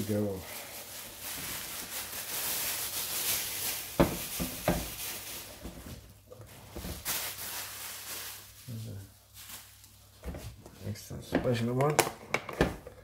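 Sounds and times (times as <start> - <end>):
plastic bag rustling: 0.0 - 11.8.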